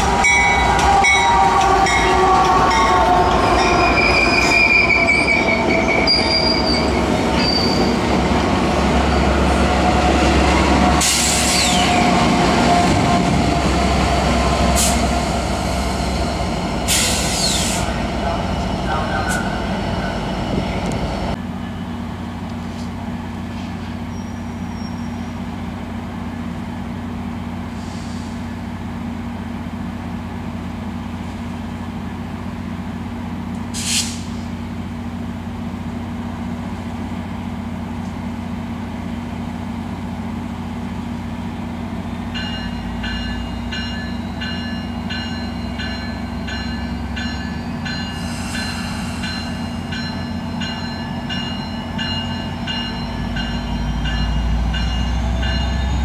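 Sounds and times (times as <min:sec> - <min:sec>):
locomotive running hum: 0:00.0 - 0:33.8
diesel locomotive passing: 0:00.0 - 0:56.0
locomotive bell ringing: 0:00.2 - 0:08.0, 0:42.3 - 0:56.0
short hiss: 0:33.8 - 0:34.5.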